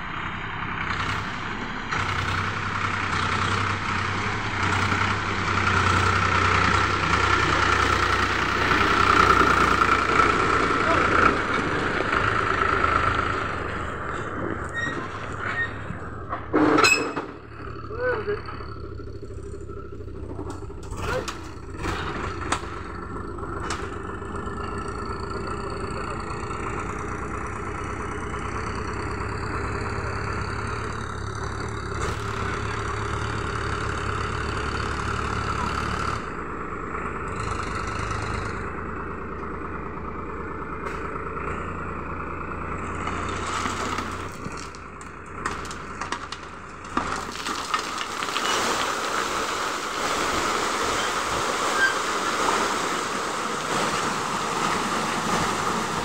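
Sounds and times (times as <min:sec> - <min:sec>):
tractor engine running: 0:00.0 - 0:56.0
stone chips sliding out: 0:47.0 - 0:55.9.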